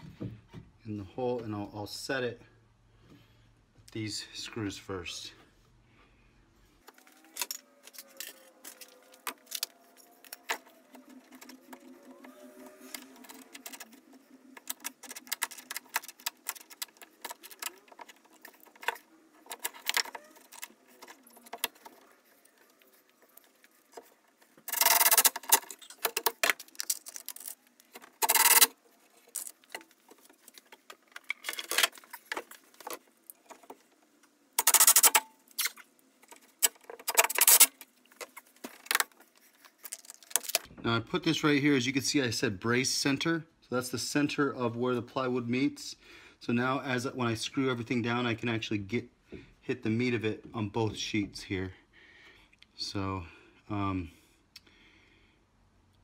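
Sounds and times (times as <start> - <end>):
metallic clicks and rattles: 34.6 - 39.0.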